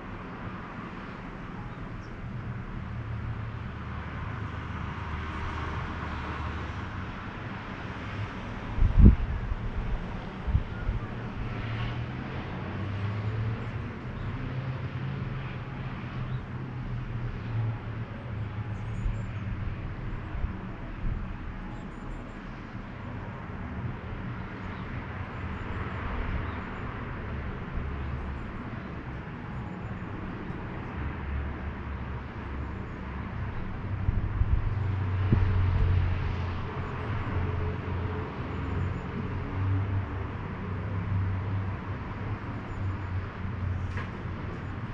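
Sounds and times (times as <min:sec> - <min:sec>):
distant road traffic rumble: 0:00.0 - 0:44.9
vehicles passing: 0:00.0 - 0:44.9.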